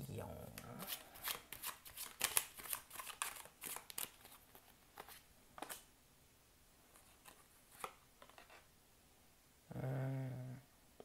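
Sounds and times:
cards being shuffled: 0.5s - 5.9s
cards clicking: 1.2s - 4.3s, 5.0s - 5.9s.

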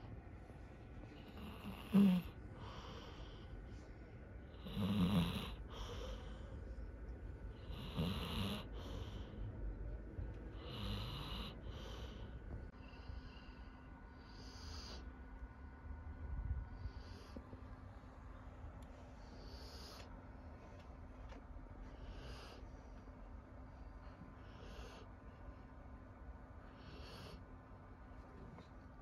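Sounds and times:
dog snoring: 1.2s - 3.4s, 4.5s - 6.3s, 7.6s - 9.4s, 10.5s - 12.2s, 26.7s - 27.4s.

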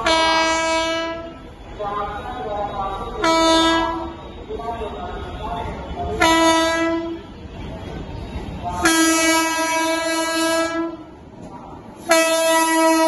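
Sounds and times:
train air horn blasts: 0.0s - 1.4s, 6.2s - 7.3s, 8.8s - 11.0s, 12.1s - 13.0s
train rumbling: 0.0s - 13.0s.

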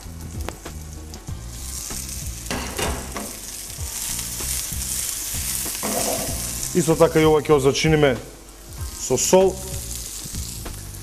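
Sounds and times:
vegetables sizzling in oil: 0.0s - 11.0s
frying pan knocks: 2.5s - 3.4s, 5.8s - 6.4s.

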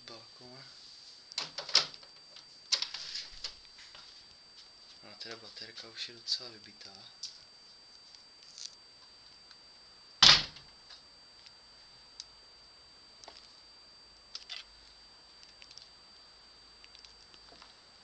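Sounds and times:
faint high-pitched whine: 0.0s - 18.0s
loud thump: 10.2s - 10.6s.

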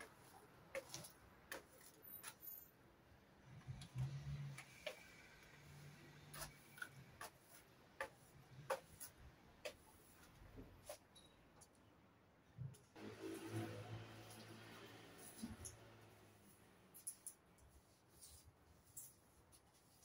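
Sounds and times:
broom sweeping leaves on tiles: 13.0s - 20.0s.

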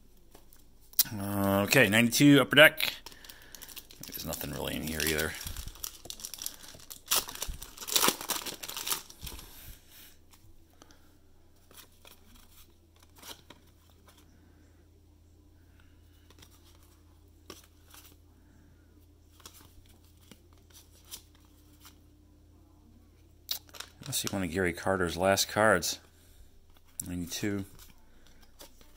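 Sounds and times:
faint steady hum: 0.0s - 28.9s
foil wrapper crinkling and tearing: 2.2s - 9.6s, 23.5s - 24.4s.

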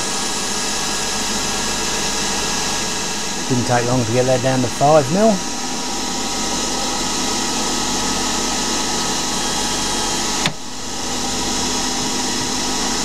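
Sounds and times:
lathe running with whine: 0.0s - 13.0s.

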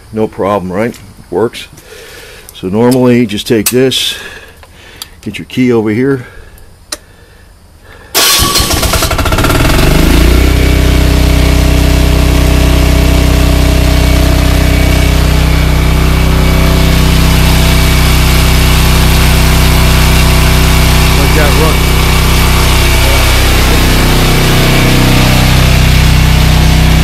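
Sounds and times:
diesel generator starting and running: 7.9s - 27.0s.

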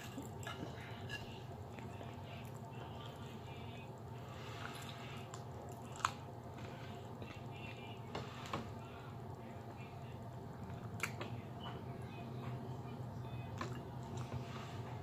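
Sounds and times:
chewing and sucking fingers: 4.6s - 6.3s.

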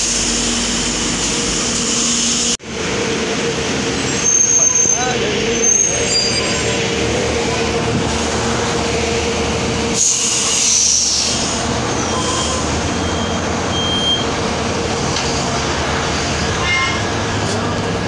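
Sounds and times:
bus cabin hum and rumble: 0.0s - 18.0s.

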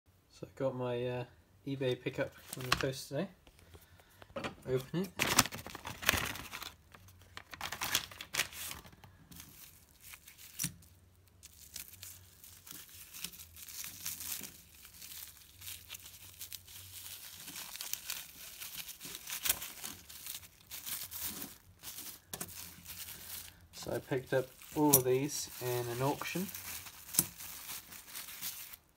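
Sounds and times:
plastic wrapping crinkling and tearing: 2.4s - 2.9s, 4.7s - 28.9s.

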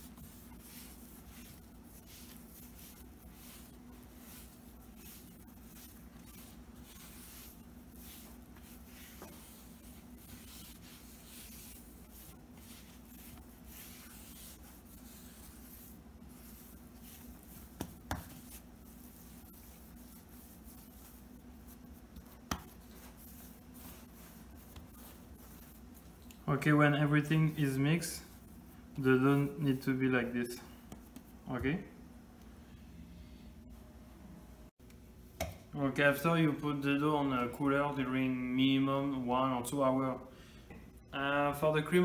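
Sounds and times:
hands smearing dough on countertop: 0.0s - 31.8s
steady low hum: 0.0s - 42.0s.

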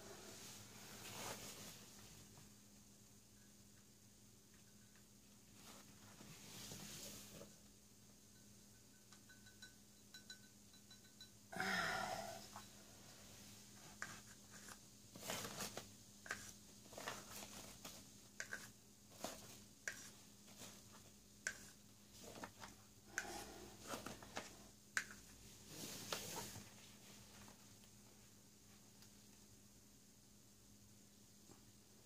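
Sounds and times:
plastic spoon scraping paint: 18.4s - 20.8s.

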